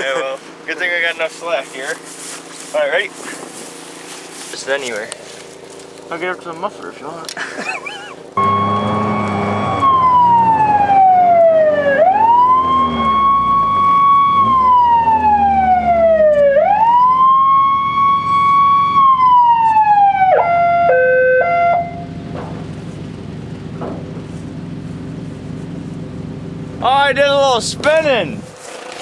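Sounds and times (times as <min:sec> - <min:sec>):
police siren wailing: 0:08.4 - 0:22.2
engine idling: 0:20.1 - 0:29.0.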